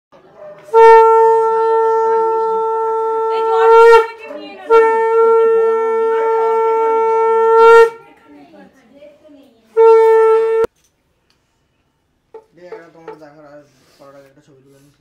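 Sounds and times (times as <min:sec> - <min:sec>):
conch shell blasts: 0:00.7 - 0:08.0, 0:09.8 - 0:10.7.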